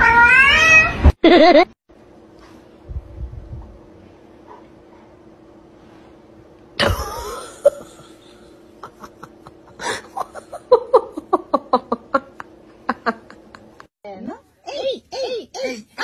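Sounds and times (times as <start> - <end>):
person laughing hard: 1.2 - 1.7, 6.8 - 13.9.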